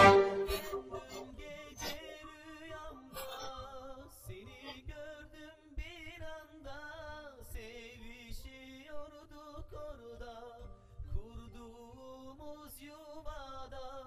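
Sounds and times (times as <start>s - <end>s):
musical accompaniment: 0.0s - 3.3s
wordless love song melody: 0.0s - 7.0s.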